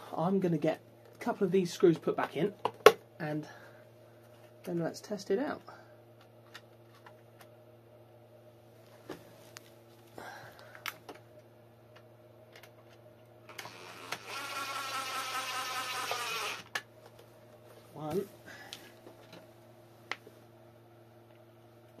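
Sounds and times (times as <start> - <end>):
electric screwdriver whining: 13.5 - 16.8.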